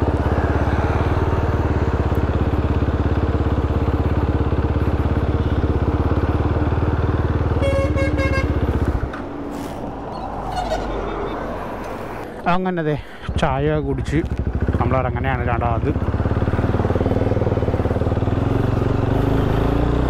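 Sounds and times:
motorcycle engine running: 0:00.0 - 0:09.2, 0:13.3 - 0:20.0
vehicle horn beeps: 0:07.5 - 0:08.8, 0:10.4 - 0:11.5.

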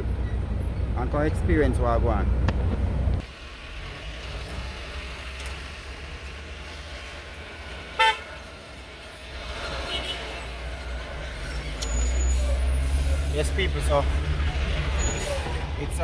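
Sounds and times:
engine and road rumble: 0:00.0 - 0:16.0
car horn toot: 0:08.0 - 0:08.3, 0:09.8 - 0:10.6.

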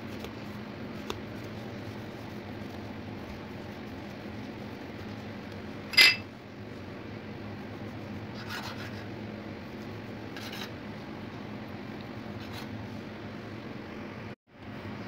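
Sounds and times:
hands kneading dough: 0:00.0 - 0:13.2
sharp ringing clink: 0:05.9 - 0:06.2.

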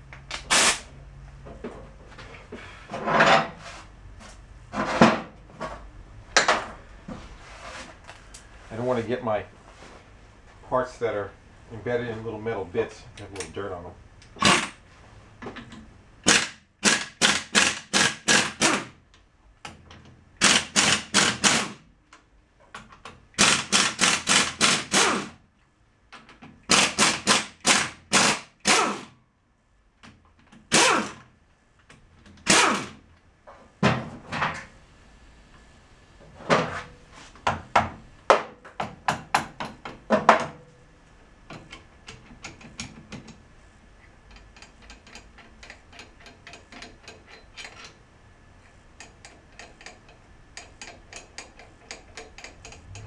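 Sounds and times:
impact wrench bursts: 0:00.3 - 0:00.9, 0:14.4 - 0:14.8, 0:16.2 - 0:19.0, 0:20.4 - 0:21.9, 0:23.3 - 0:25.4, 0:26.7 - 0:29.2, 0:30.7 - 0:31.3, 0:32.4 - 0:33.0
light metal clicking and tapping: 0:44.2 - 0:48.0, 0:48.7 - 0:53.0.

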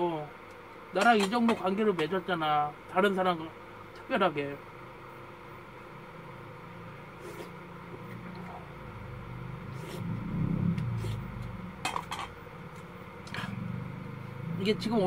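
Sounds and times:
low hum: 0:05.1 - 0:15.0.

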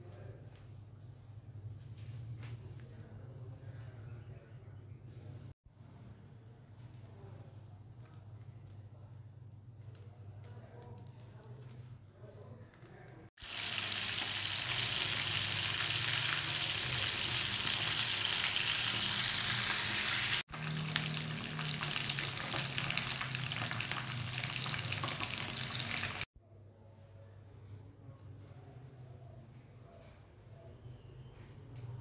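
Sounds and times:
fish sizzling in hot oil: 0:13.4 - 0:26.3.

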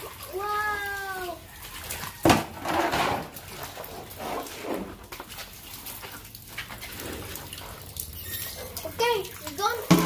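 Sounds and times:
water splashing: 0:00.0 - 0:10.0.

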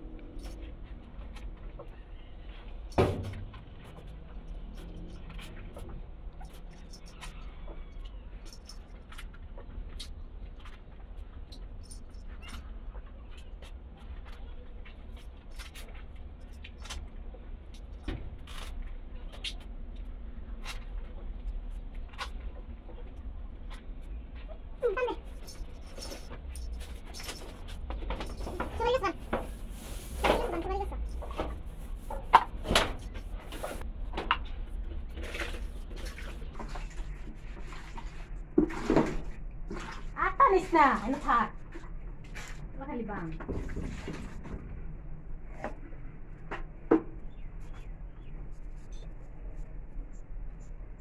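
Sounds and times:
knocks and rustles of bucket: 0:02.6 - 0:07.6, 0:24.9 - 0:44.9
cow being hand-milked into bucket: 0:34.8 - 0:44.7.

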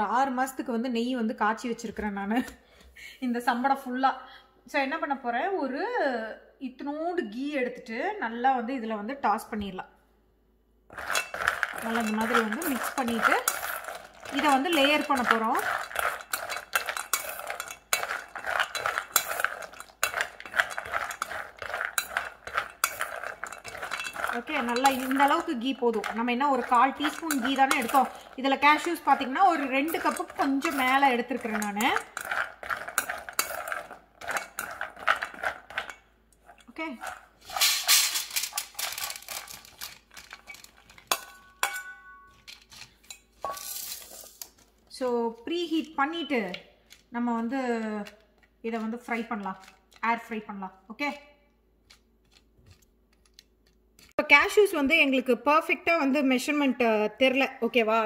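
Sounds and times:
nuts clattering onto metal tray: 0:10.9 - 0:36.0, 0:36.9 - 0:44.6
metal spoon scraping steel bowl: 0:10.9 - 0:50.2.

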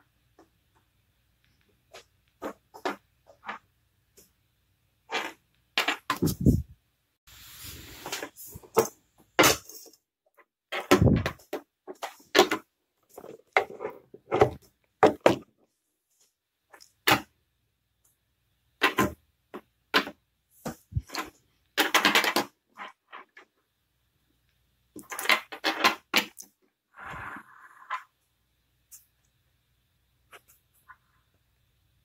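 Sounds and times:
plastic models clicking on wood: 0:21.1 - 0:23.5.

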